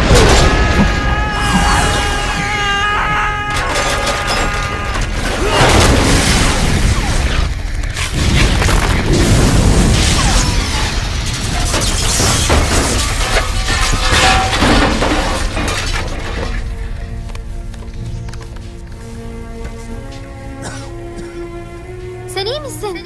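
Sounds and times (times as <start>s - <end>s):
explosion: 0.0s - 2.4s, 5.1s - 16.5s
debris crashing and clattering: 0.0s - 17.2s
film score music: 0.0s - 23.0s.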